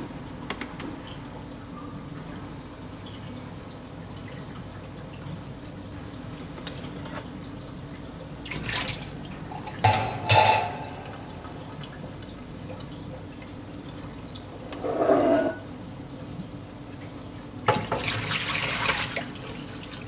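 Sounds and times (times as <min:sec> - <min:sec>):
metal jug clattering: 0:09.5 - 0:11.5.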